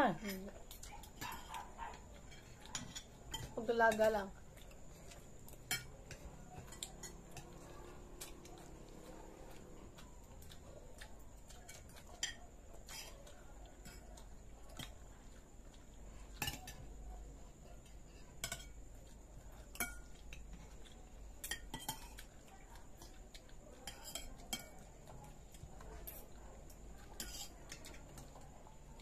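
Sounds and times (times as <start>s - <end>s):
cutlery clinking on plates: 0.8s - 4.2s, 5.1s - 8.5s, 11.5s - 13.1s, 16.3s - 16.9s, 18.4s - 18.8s, 19.6s - 20.5s, 21.4s - 22.3s, 23.8s - 25.2s, 27.2s - 28.4s.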